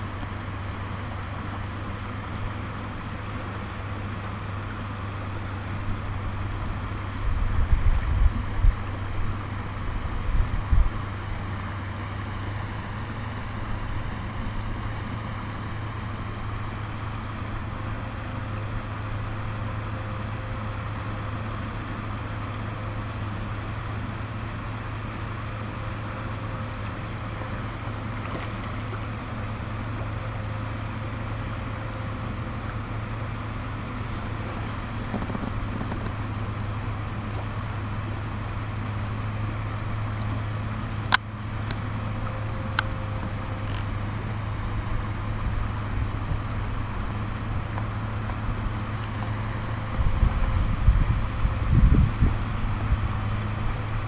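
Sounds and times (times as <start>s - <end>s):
stream running over gravel: 26.8s - 30.2s, 33.7s - 40.5s.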